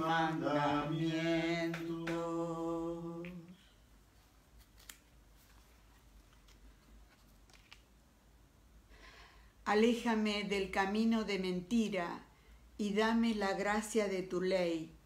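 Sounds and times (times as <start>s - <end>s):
man singing unaccompanied: 0.0s - 3.6s.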